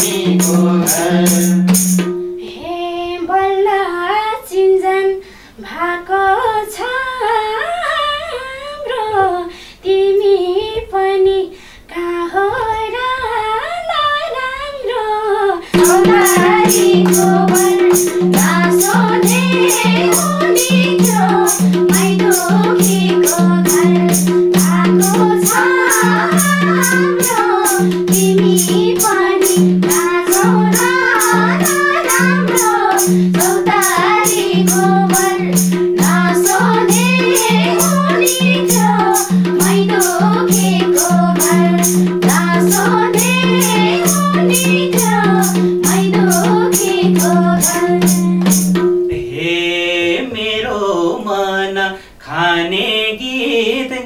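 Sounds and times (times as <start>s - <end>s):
woman singing: 0.0s - 1.6s, 2.4s - 50.8s
hand drum beat: 0.0s - 2.4s, 15.7s - 49.3s.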